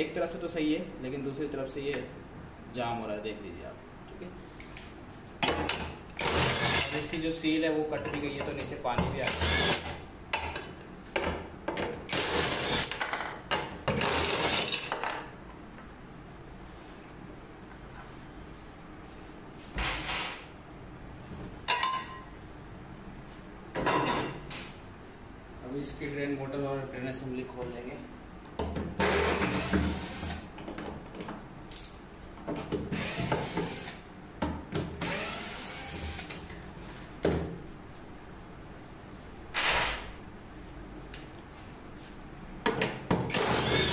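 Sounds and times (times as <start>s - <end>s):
cordless drill whirring: 29.0s - 30.3s, 33.0s - 34.0s, 35.0s - 36.3s, 43.3s - 43.9s.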